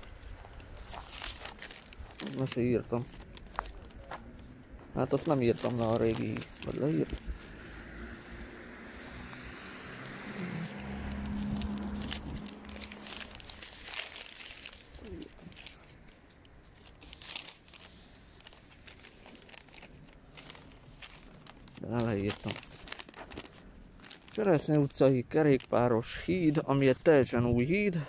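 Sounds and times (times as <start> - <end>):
paper notes rustling: 0.0 - 27.9
vehicle passing: 2.5 - 14.8.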